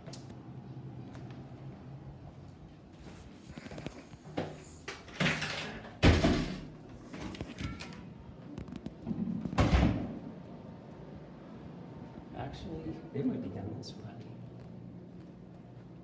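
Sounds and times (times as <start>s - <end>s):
door closing thud: 6.0s - 6.8s, 9.1s - 10.2s.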